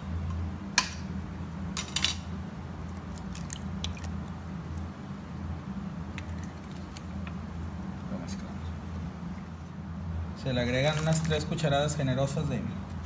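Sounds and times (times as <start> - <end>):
steady low hum: 0.0 - 13.0
egg shell cracking: 3.0 - 4.2.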